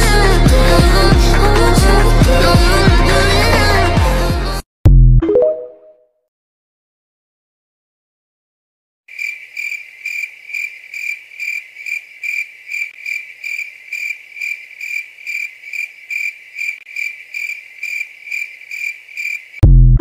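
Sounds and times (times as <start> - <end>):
cricket chirping: 9.1 - 19.6.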